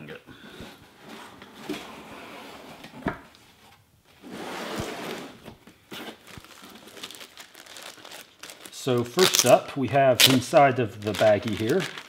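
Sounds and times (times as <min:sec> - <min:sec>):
cardboard sliding and rustling: 0:04.1 - 0:06.4.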